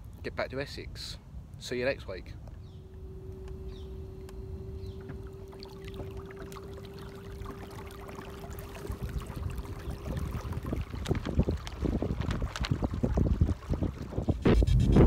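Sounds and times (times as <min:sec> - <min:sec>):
steady hum: 0:00.0 - 0:15.0
water lapping and trickling: 0:02.4 - 0:14.8
small splashes: 0:04.2 - 0:14.4.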